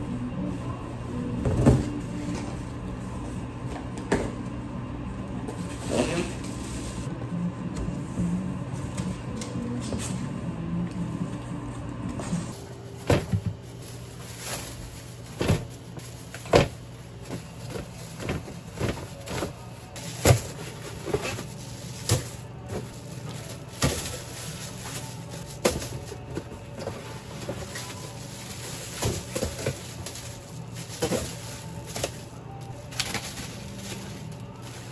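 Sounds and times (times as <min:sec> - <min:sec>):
low steady hum: 0:00.0 - 0:34.9
plastic crinkling: 0:12.5 - 0:34.9.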